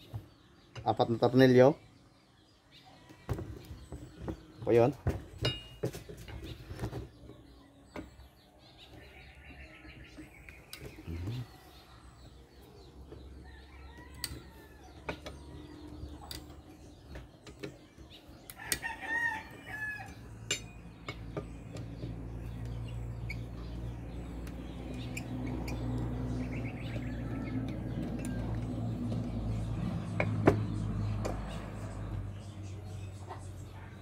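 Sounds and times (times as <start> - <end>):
rooster crowing: 13.4 - 15.1, 18.6 - 20.3.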